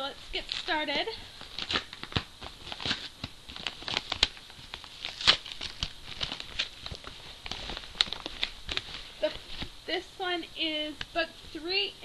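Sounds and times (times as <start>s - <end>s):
packaging crinkling and tearing: 0.4s - 9.7s
sharp packaging rip: 1.6s - 6.9s.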